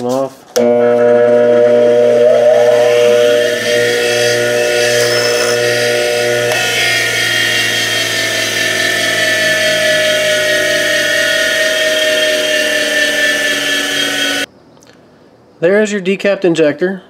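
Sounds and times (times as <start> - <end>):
bench grinder spinning down: 0.6 - 14.5.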